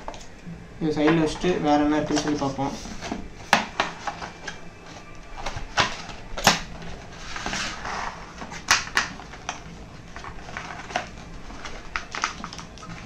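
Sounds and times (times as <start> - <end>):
papery scrape: 7.0 - 8.6.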